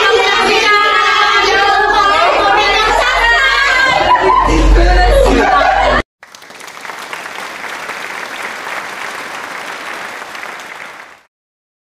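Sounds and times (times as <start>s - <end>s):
crowd applause: 5.6s - 11.3s.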